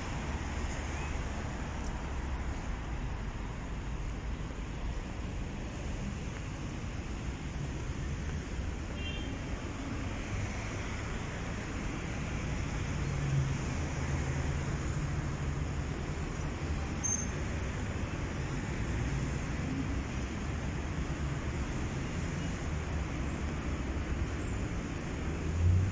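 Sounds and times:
city traffic rumble: 0.0 - 25.9.

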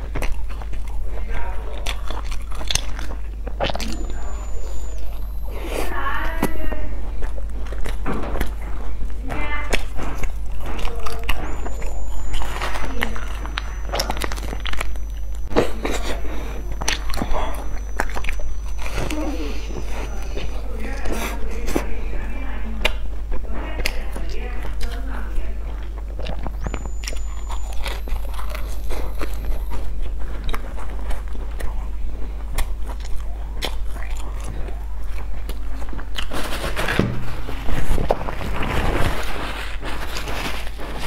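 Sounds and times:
bread loaf crackling rustle: 0.0 - 41.0
chewing and wet mouth sounds: 0.0 - 41.0.

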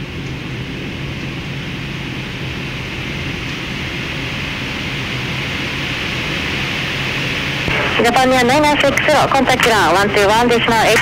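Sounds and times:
low hum: 7.4 - 11.0.

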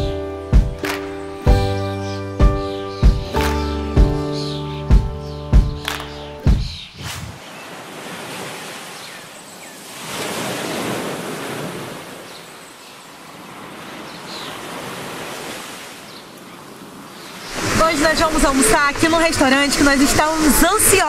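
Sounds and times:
wind on microphone: 6.5 - 7.5
waves washing onto a beach: 7.4 - 21.0.

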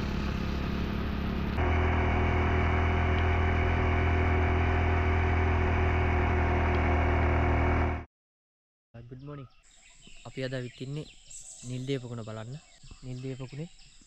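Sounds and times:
motorcycle engine running: 0.0 - 8.1.

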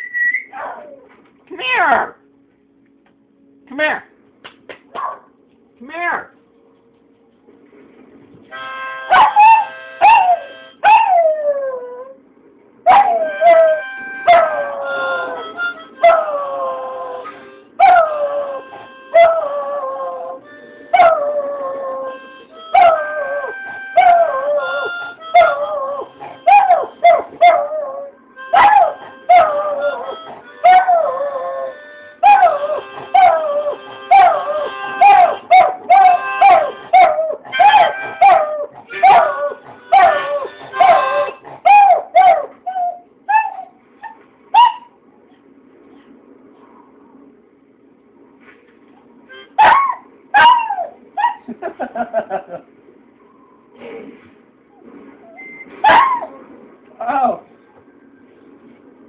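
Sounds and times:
blues harmonica chords: 8.5 - 10.8, 13.1 - 19.3, 20.4 - 27.4, 28.2 - 41.6, 49.2 - 49.6
dog howling: 12.9 - 15.4, 16.0 - 20.4, 21.0 - 43.8.

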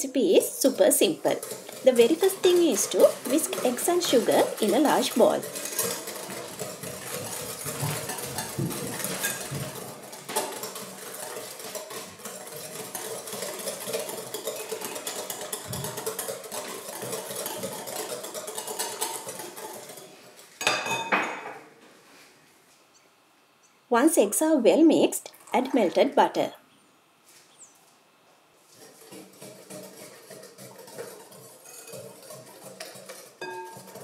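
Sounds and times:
whisk rattling in glass bowl: 0.3 - 21.1, 28.7 - 34.0.

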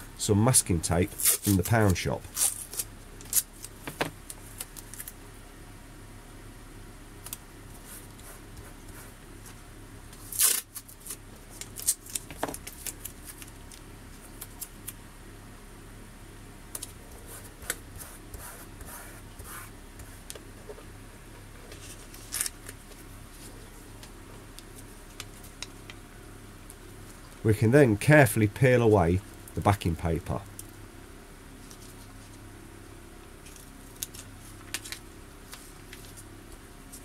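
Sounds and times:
tape and paper rustling: 1.1 - 5.2, 10.1 - 15.0, 21.6 - 26.0, 33.4 - 37.0.

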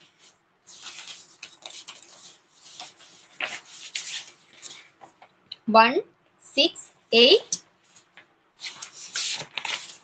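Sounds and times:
rubbing and scratching on microphone: 0.0 - 5.3.

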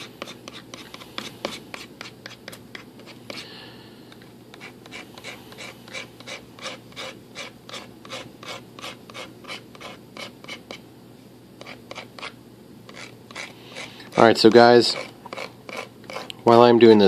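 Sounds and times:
knife blade scraping: 11.6 - 14.3, 14.9 - 17.0.

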